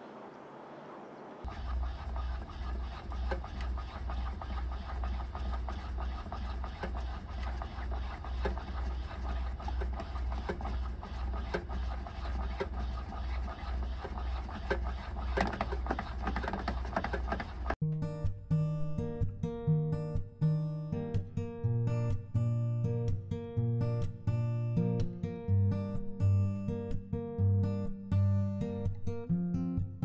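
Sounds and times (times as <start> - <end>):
low rhythmic pulsing of crank: 1.4 - 17.8
steady scraping: 1.4 - 17.8.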